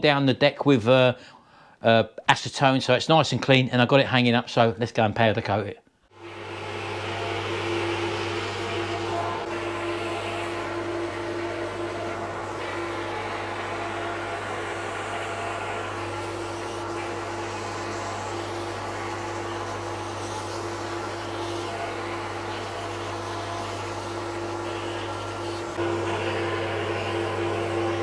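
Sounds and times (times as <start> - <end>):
machine drone with hum: 6.1 - 28.0
air hiss of spray gun: 6.2 - 28.0.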